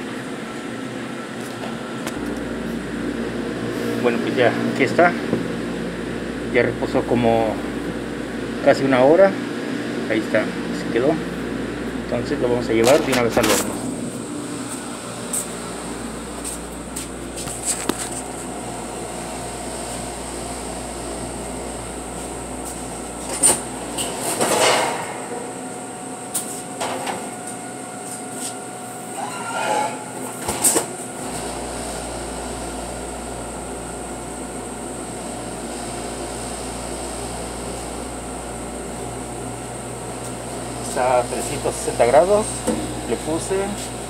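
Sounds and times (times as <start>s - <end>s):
oven and exhaust hood drone: 0.0s - 44.0s
metal oven door clanking: 24.0s - 25.5s.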